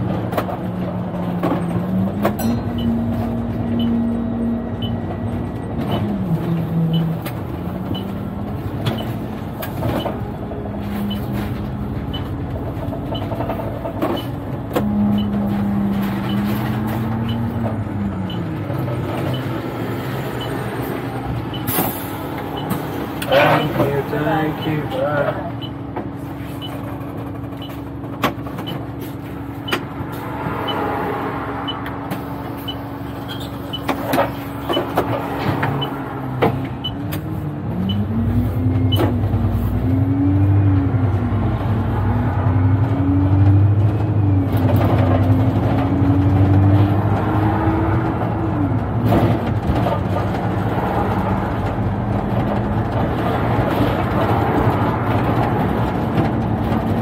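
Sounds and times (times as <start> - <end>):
bus engine idling: 0.0 - 30.8, 31.6 - 42.0
bus pulling away under load: 0.0 - 57.0.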